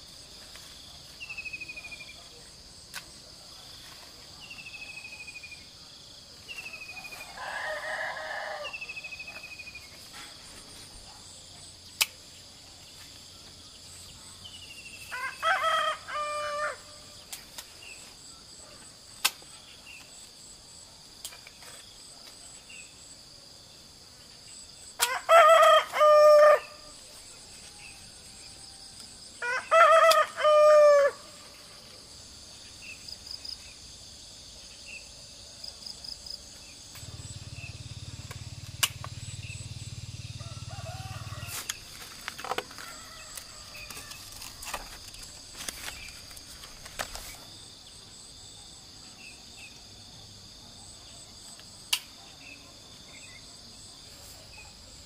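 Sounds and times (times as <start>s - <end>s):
insects chorus: 0.0s - 55.0s
rooster crowing: 7.1s - 9.0s, 15.1s - 17.0s, 25.1s - 26.8s, 29.4s - 31.3s, 40.4s - 41.7s, 42.7s - 44.3s
sharp clicks: 38.3s - 39.2s.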